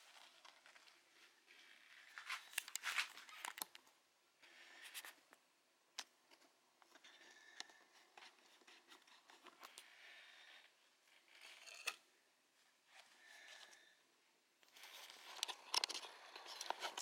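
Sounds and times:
cloth and packaging rustling: 0:00.0 - 0:03.8.

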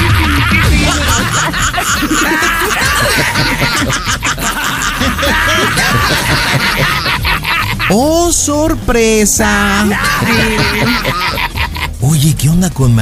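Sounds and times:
people chuckling: 0:00.0 - 0:08.0, 0:09.7 - 0:12.0
background music: 0:00.0 - 0:13.0.

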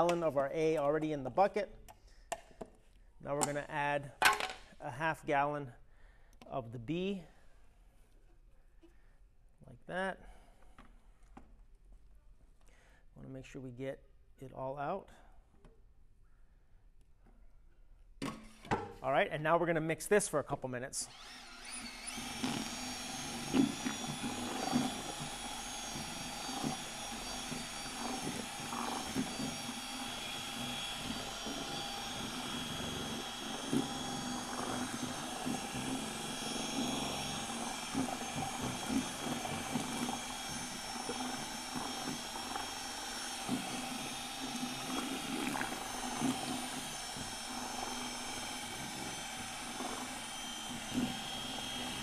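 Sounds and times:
cordless drill mixing resin: 0:00.0 - 0:03.8, 0:20.9 - 0:52.0.

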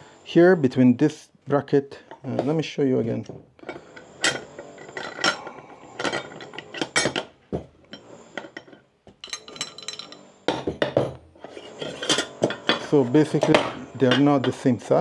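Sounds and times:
metal parts clinking and knocking: 0:03.6 - 0:07.3, 0:07.9 - 0:14.7.

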